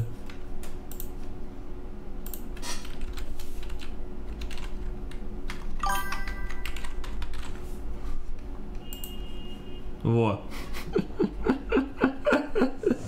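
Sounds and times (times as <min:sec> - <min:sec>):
keyboard keystrokes: 0:02.3 - 0:07.6
electronic chime: 0:05.8 - 0:07.0.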